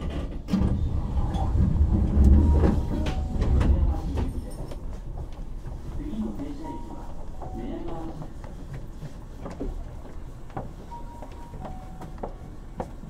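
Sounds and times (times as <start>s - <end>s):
electric train rumble: 0.0s - 13.0s.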